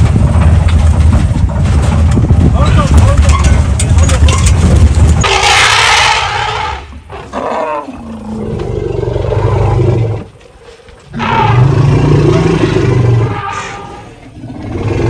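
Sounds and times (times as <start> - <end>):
elephant roaring: 5.2 - 15.0.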